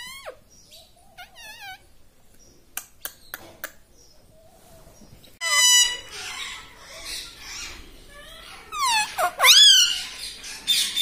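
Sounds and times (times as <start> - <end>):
parakeet warbling chatter: 1.2 - 1.8, 5.4 - 11.0
parakeet harsh screech: 5.4 - 6.5, 8.7 - 10.1.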